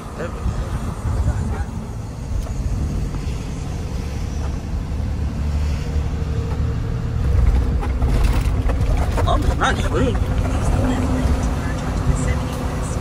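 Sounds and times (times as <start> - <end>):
road noise: 0.0 - 13.0
truck engine rumble: 0.0 - 13.0.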